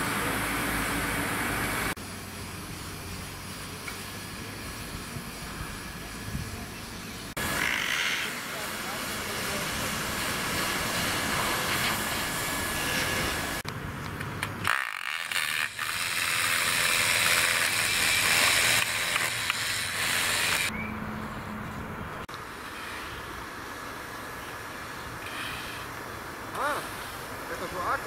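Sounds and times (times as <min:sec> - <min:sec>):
building site noise: 0:00.0 - 0:28.0
hot-air welder hissing: 0:01.2 - 0:13.6, 0:14.7 - 0:20.7.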